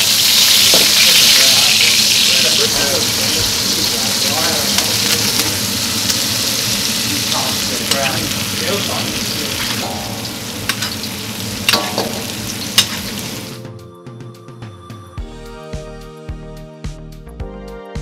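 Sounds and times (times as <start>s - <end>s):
steaks sizzling in a skillet: 0.0s - 13.6s
soft music: 13.3s - 18.0s.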